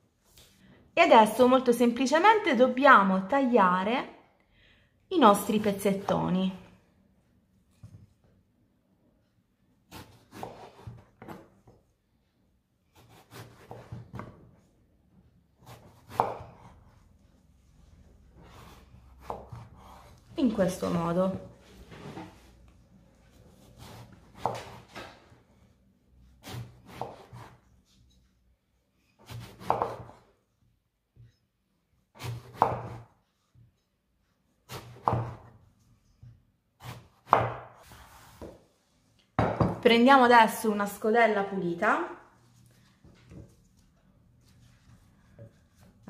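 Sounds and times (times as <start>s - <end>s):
knife slicing eggplant: 9.8s - 11.8s, 12.8s - 14.7s, 15.6s - 17.1s, 18.3s - 21.1s, 23.2s - 25.4s, 26.2s - 28.3s, 29.1s - 30.4s, 32.0s - 33.8s, 34.4s - 38.6s
knife knocking on cutting board: 39.4s - 39.8s.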